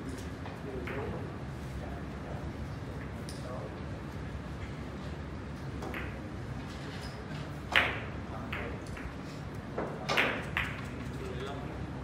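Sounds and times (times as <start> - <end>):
billiard balls clicking together: 10.1 - 11.3.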